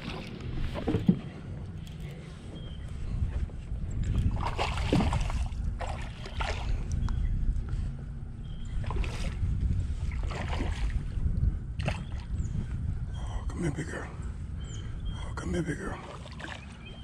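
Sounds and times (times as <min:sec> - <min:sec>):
water sloshing around boat: 0:00.0 - 0:13.2, 0:13.8 - 0:17.0
wind rumble on microphone: 0:00.0 - 0:17.0
rushing splashes: 0:04.4 - 0:06.7.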